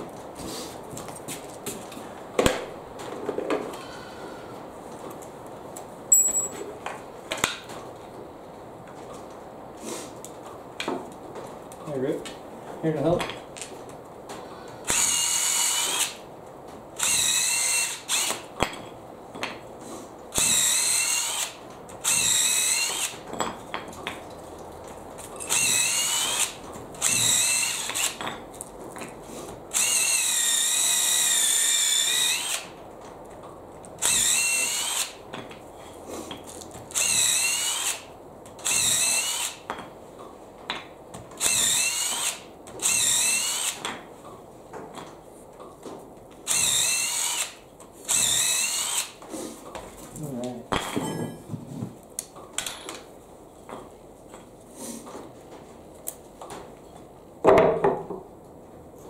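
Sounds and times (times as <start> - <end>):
cordless drill boring into wood: 14.8 - 16.2, 17.0 - 18.4, 20.4 - 23.2, 25.4 - 28.2, 29.7 - 32.7, 34.0 - 35.2, 36.9 - 39.6, 41.4 - 43.9, 46.5 - 49.2.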